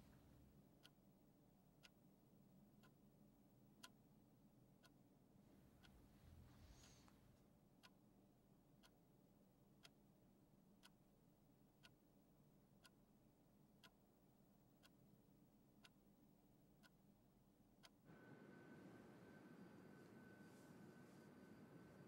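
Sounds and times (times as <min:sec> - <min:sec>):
clock ticking: 0:00.0 - 0:18.1
faint hum with high tone: 0:15.1 - 0:22.0.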